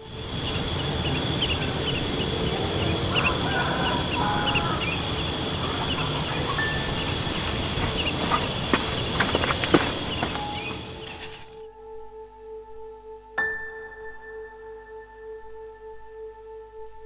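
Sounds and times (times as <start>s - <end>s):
fowl calling: 0.0s - 11.6s
small birds chirping: 0.0s - 11.6s
high insect drone: 0.0s - 12.3s.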